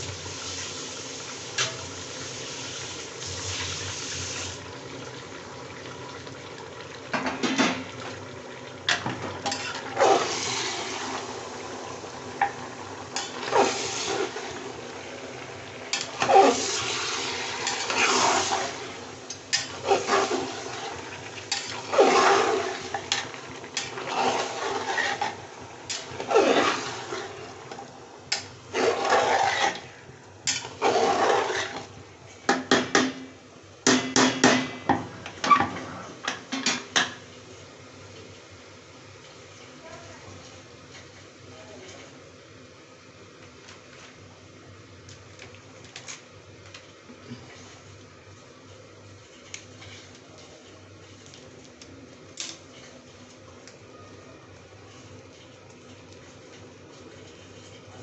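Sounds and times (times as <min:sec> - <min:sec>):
meat and onions sizzling in oil: 0:00.0 - 0:41.5, 0:42.2 - 0:58.0
metal spatula scraping a pot: 0:09.4 - 0:10.8, 0:15.9 - 0:17.0, 0:17.6 - 0:18.8, 0:19.5 - 0:27.4, 0:28.3 - 0:31.9, 0:49.2 - 0:51.3, 0:54.8 - 0:58.0.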